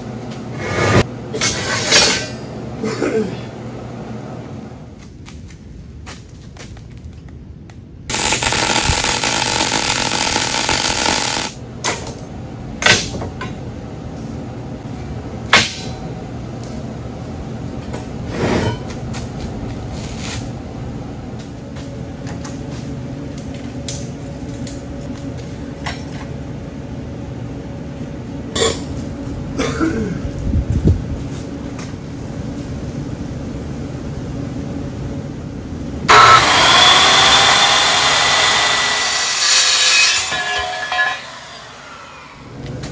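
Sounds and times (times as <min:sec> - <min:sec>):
welder arc crackling: 0:08.1 - 0:11.6.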